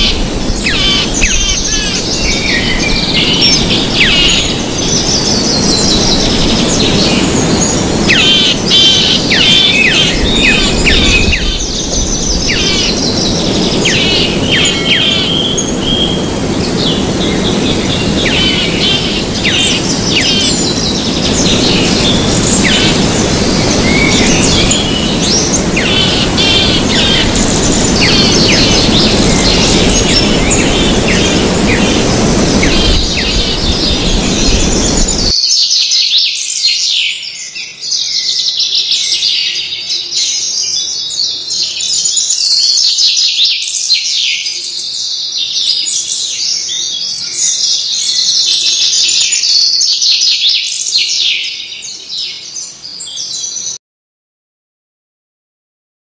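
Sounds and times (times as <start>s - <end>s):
loud even rushing noise: 0.0s - 35.3s
small birds chirping: 0.0s - 36.3s.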